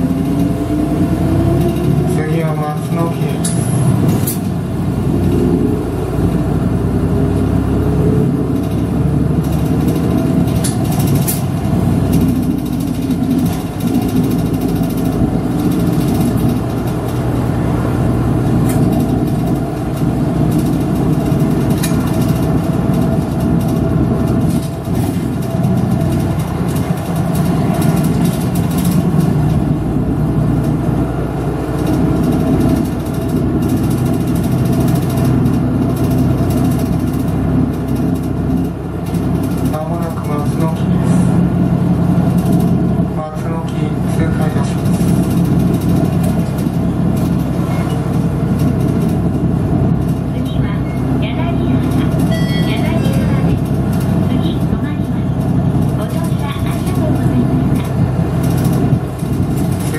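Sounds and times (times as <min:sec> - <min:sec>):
bus engine running: 0:00.0 - 0:59.9
clicks and rattles: 0:55.4 - 0:59.9.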